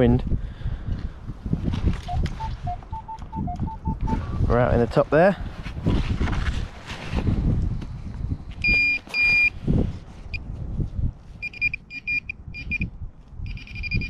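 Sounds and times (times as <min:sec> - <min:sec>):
wind buffeting microphone: 0:00.0 - 0:14.0
metal detector beeping: 0:02.1 - 0:04.2, 0:08.6 - 0:09.5, 0:11.4 - 0:14.0.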